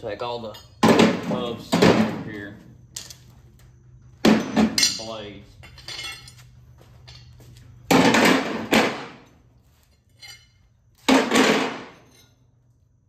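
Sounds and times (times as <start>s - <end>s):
metal clangs ringing: 4.2s - 6.4s.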